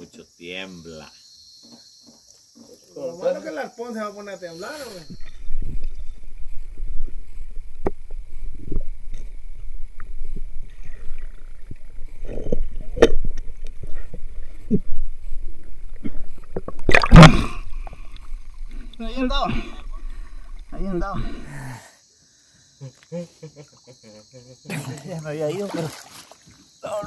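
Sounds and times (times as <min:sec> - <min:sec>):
underwater rumble and gurgling: 0:05.1 - 0:21.5
loud splash: 0:16.0 - 0:21.5.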